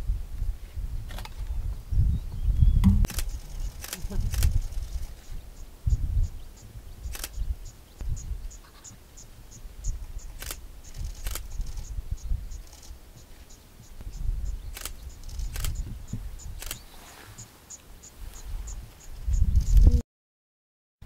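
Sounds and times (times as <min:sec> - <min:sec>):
low rumble of wind or vehicle: 0:00.0 - 0:20.0
camera shutter clicks: 0:03.0 - 0:04.8, 0:07.1 - 0:07.4, 0:10.4 - 0:11.8, 0:14.8 - 0:15.8, 0:16.6 - 0:16.8.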